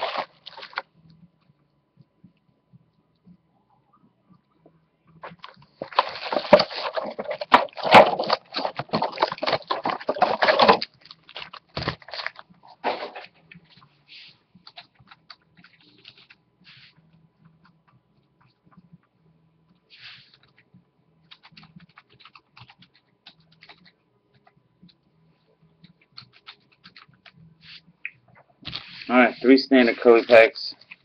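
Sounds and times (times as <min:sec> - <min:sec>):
plastic packaging crinkling: 0:00.0 - 0:00.9, 0:05.2 - 0:13.3.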